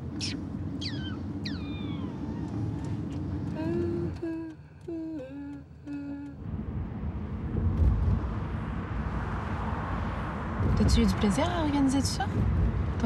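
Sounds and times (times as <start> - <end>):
car road rumble: 0.0 - 13.0
person humming a tune: 3.5 - 6.4.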